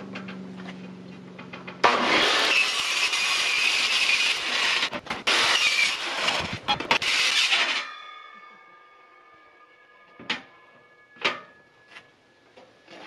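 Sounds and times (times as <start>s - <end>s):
saw blade winding down: 1.8s - 8.0s
circular saw cutting metal: 1.8s - 9.2s.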